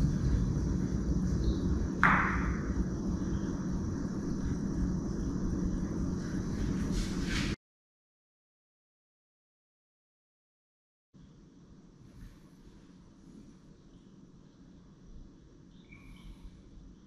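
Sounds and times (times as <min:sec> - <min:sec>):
low room rumble: 0:00.0 - 0:07.6, 0:11.2 - 0:17.0.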